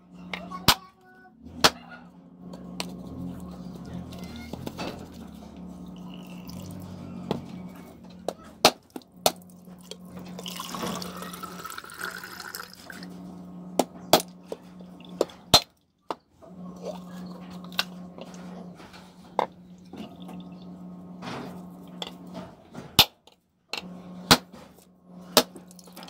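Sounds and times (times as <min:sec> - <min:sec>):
steady low hum: 0:00.0 - 0:15.7, 0:16.4 - 0:23.1, 0:23.7 - 0:26.0
water pouring into a bowl: 0:10.4 - 0:13.0.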